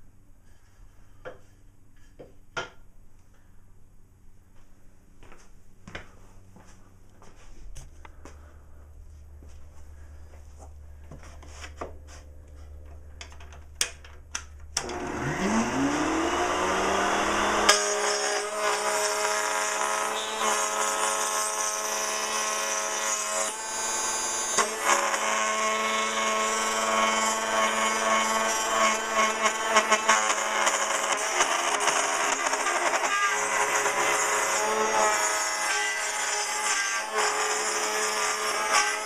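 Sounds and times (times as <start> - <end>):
router whining and cutting wood: 14.8 - 39.0.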